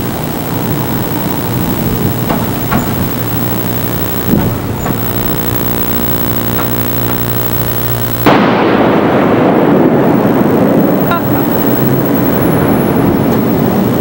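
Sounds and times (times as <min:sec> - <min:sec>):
jet engines roaring overhead: 0:00.0 - 0:14.0
steady low engine hum: 0:00.0 - 0:14.0.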